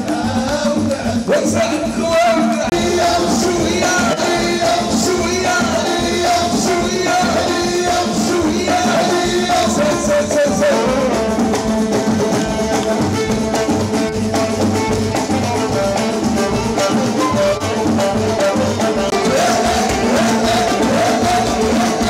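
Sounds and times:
party music with singer: 0:00.0 - 0:22.0.

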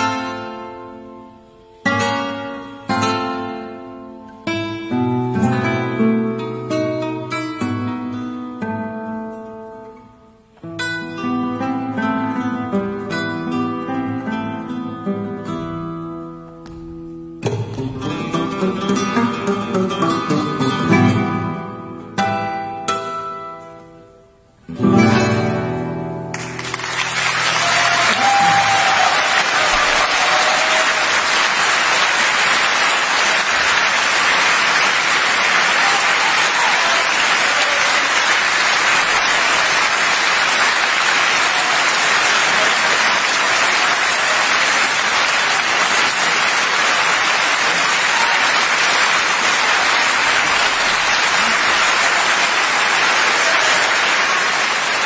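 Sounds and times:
audience applauding: 0:26.3 - 0:55.0.

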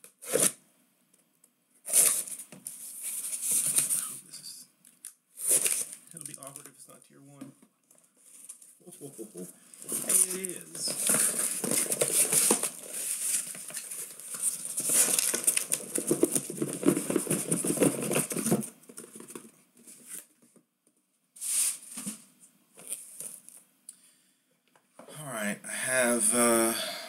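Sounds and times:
tape tearing: 0:00.0 - 0:00.6, 0:01.9 - 0:02.4, 0:05.4 - 0:06.7, 0:09.8 - 0:19.4
cardboard scraping and rustling: 0:09.8 - 0:20.3.

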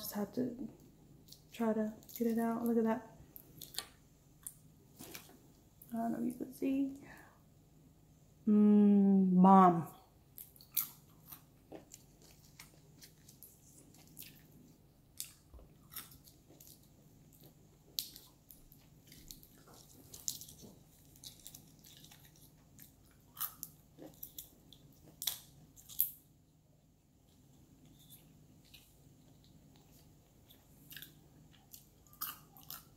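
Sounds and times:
close-up chewing: 0:10.4 - 0:26.2, 0:27.3 - 0:32.9.

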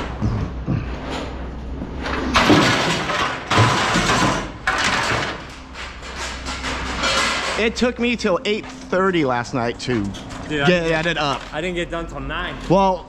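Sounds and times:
scrap metal clattering into bin: 0:02.0 - 0:07.8
metal crashes: 0:02.0 - 0:08.0.

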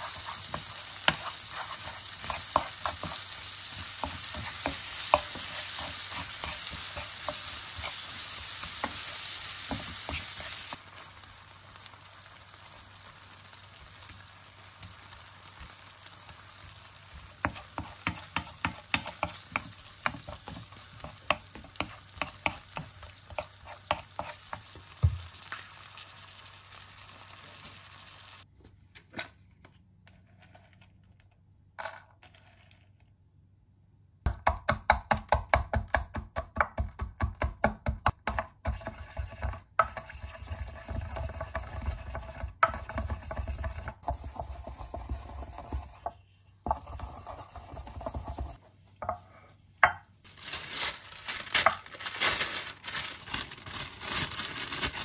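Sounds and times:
food sizzling in a pan: 0:00.0 - 0:28.5, 0:38.7 - 0:48.6.

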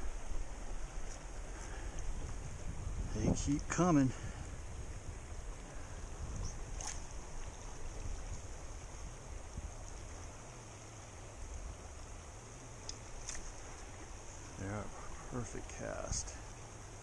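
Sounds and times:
river flowing over rocks: 0:00.0 - 0:03.1.

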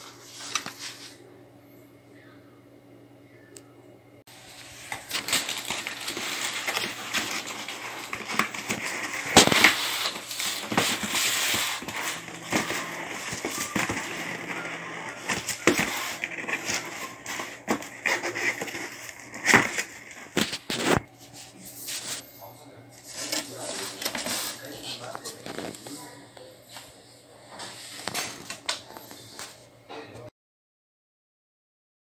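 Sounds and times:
cardboard and plastic rustling: 0:00.0 - 0:01.2, 0:04.3 - 0:22.2, 0:23.0 - 0:26.9, 0:27.5 - 0:29.6.

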